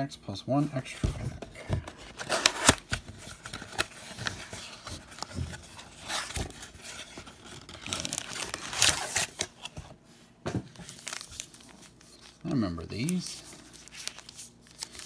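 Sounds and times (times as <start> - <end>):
foil wrappers crinkling: 1.9 - 9.7, 10.8 - 15.0.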